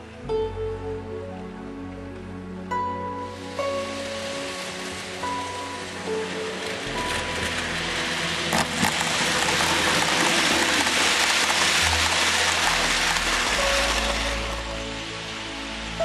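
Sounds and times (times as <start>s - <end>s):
soft background music: 0.0s - 16.0s
model train wheels rattling: 8.5s - 14.2s.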